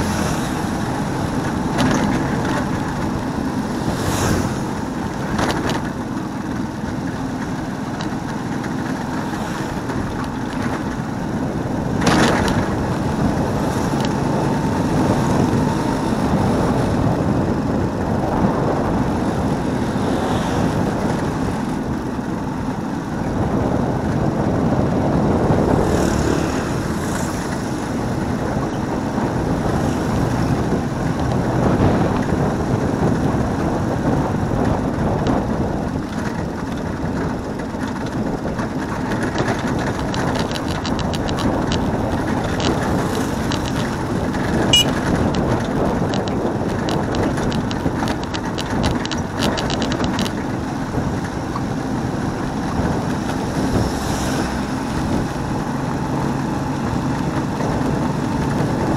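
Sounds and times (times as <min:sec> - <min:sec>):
vehicle engine and road noise: 0:00.0 - 0:58.9
light rattling clicks: 0:38.8 - 0:50.5.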